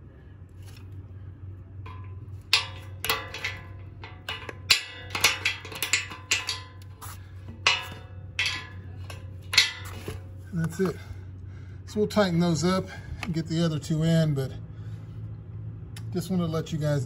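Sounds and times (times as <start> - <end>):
metal clinks and taps: 1.8 - 10.3.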